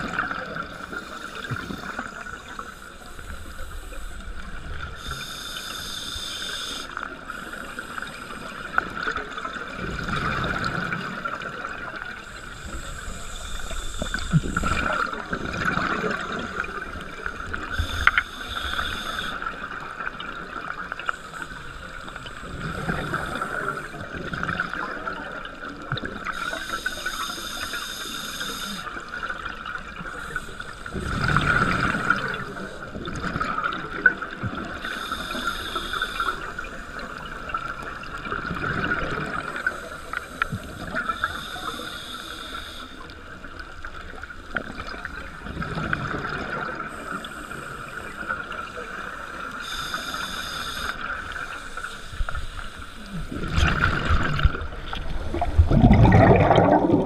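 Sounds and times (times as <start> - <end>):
regulator hiss on inhale: 0.7 - 9.0, 12.2 - 15.3, 16.1 - 19.8, 21.0 - 24.8, 26.2 - 33.0, 34.7 - 37.5, 39.3 - 43.3, 46.8 - 53.3
exhaled bubbles rushing: 53.1 - 57.0.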